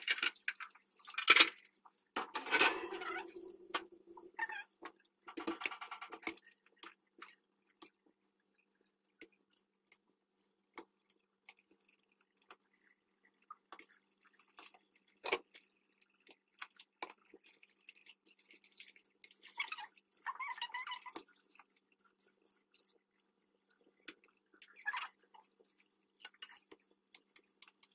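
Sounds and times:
clicks and drips: 0.0 - 27.9
wet squishing of dough sheets: 6.2 - 27.9.

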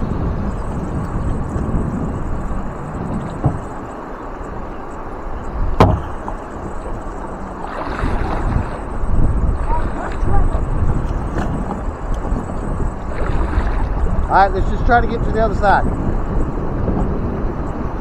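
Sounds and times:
paddling in river water: 0.0 - 18.0
wind rumbling on microphone: 0.0 - 18.0
sharp knock: 5.8 - 6.1.

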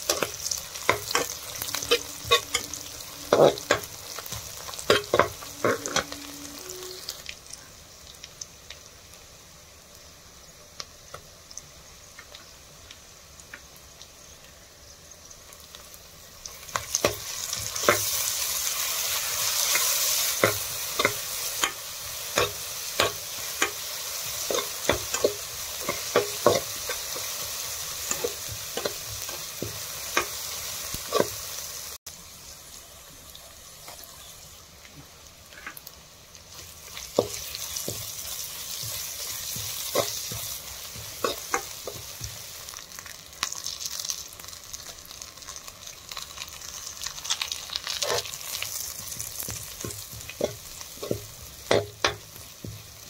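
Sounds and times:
onions sizzling in hot oil: 0.0 - 53.0
metal spoon scraping a pan: 0.1 - 7.2, 48.0 - 48.4.

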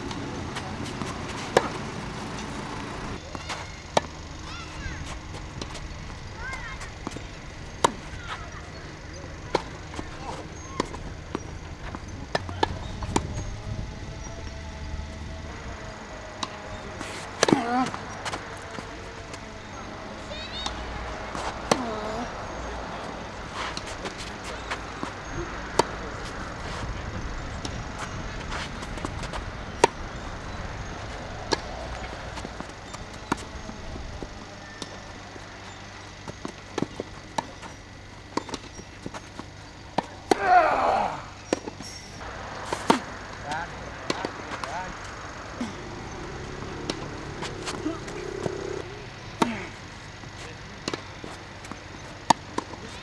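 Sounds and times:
ball and shoes on court: 0.0 - 13.4, 16.4 - 27.0, 27.6 - 53.0
tennis ball racket hits: 16.4 - 18.8, 42.6 - 53.0.

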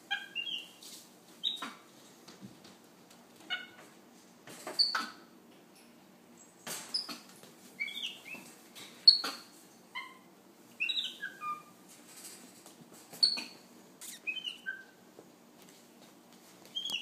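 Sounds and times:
monkey squeaking and chirping: 0.1 - 0.7, 4.8 - 5.2, 7.8 - 8.4, 9.0 - 11.7, 13.2 - 15.0, 16.8 - 17.0.

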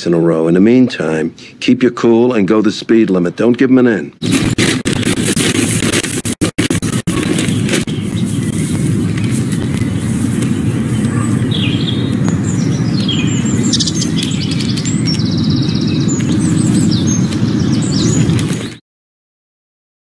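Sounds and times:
steady low rumble: 4.2 - 18.6
songbirds chirping and trilling: 7.1 - 18.8.

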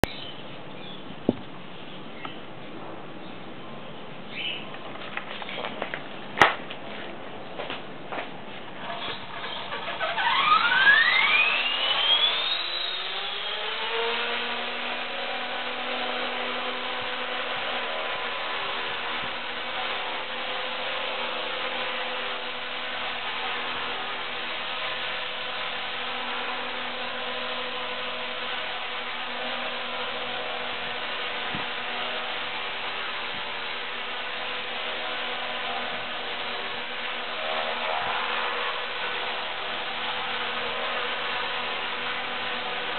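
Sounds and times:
helicopter rotor noise: 8.7 - 42.9
rc helicopter motor whine: 8.7 - 42.9.

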